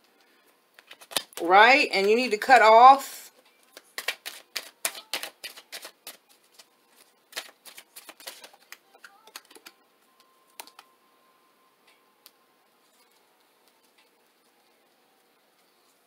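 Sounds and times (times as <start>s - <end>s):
cards being shuffled: 0.7s - 2.2s, 3.6s - 9.8s.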